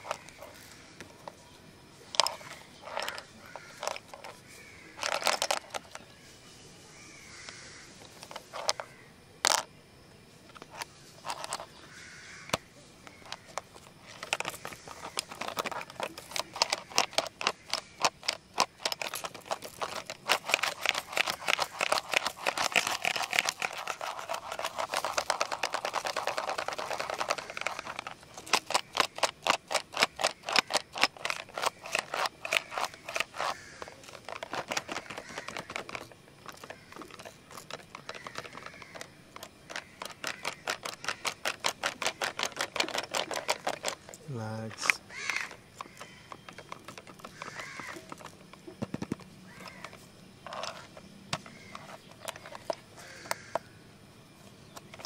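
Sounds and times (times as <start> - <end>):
pencil box contents rattling: 0.0 - 1.4, 2.1 - 6.1, 8.0 - 9.7, 10.5 - 11.8, 12.5 - 53.6, 54.6 - 55.0.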